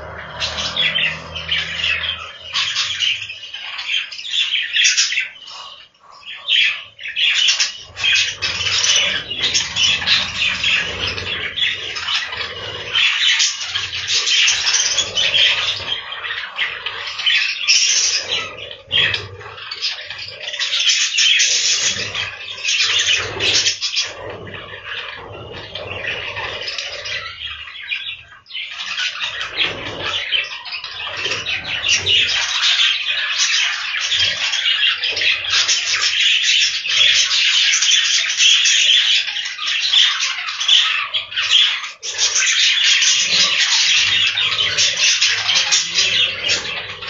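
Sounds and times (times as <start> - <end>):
budgerigars chattering: 0.0 - 47.0.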